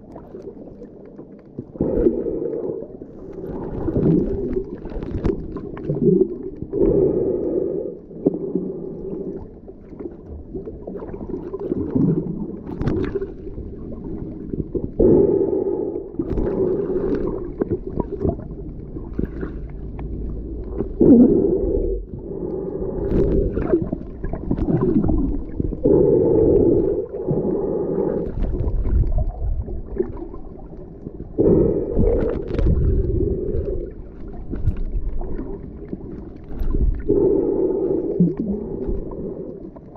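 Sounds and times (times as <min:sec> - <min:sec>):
underwater water sloshing: 0:00.0 - 0:39.9
low rumble: 0:13.2 - 0:39.9.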